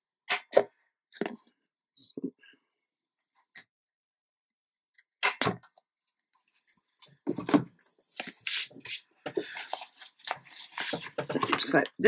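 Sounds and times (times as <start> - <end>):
card rustling and scraping: 8.2 - 11.8.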